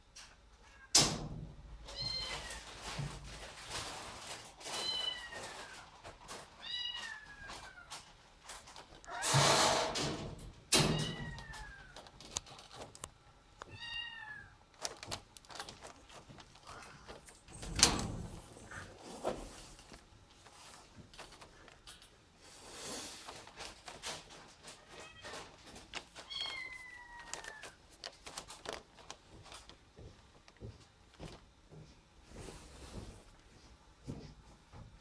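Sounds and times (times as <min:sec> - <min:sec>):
handling clicks and rustles: 0:07.8 - 0:09.1, 0:11.3 - 0:13.2, 0:14.7 - 0:22.3, 0:23.2 - 0:31.5
cat meowing: 0:10.9 - 0:12.0, 0:13.7 - 0:14.6, 0:26.2 - 0:27.8.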